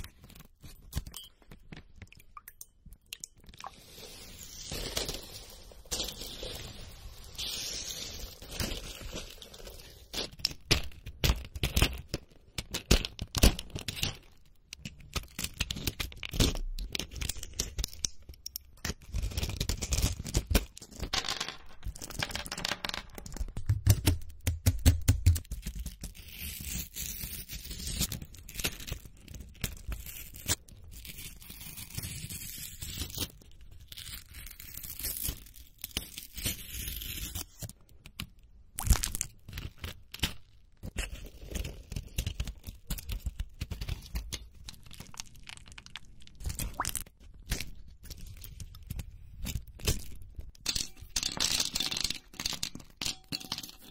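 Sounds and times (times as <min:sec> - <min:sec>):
plastic crackling: 0:42.2 - 0:48.2.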